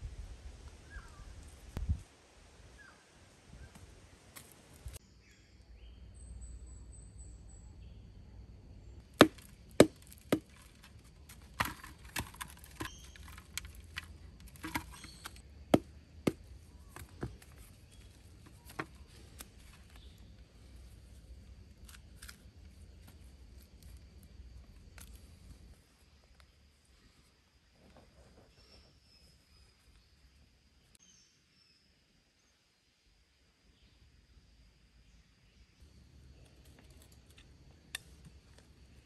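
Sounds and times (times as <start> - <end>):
stone knocking crushing ore: 9.2 - 17.5.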